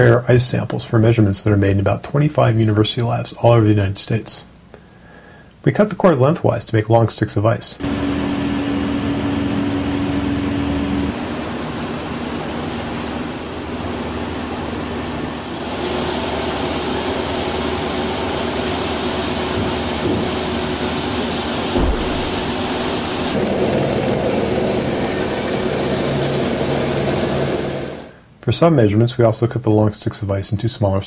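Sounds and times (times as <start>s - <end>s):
band saw cutting ice: 15.6s - 28.1s.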